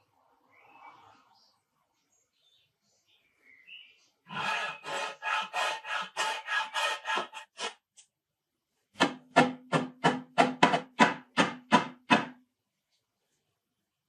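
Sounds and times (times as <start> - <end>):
sanding sponge scraping wood: 4.3 - 7.7.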